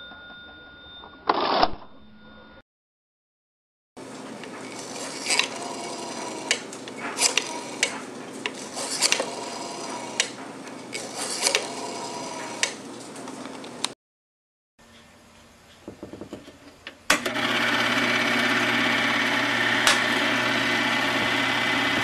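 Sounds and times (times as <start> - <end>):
rotary dial whirring and clicking: 4.3 - 14.0, 16.8 - 22.0.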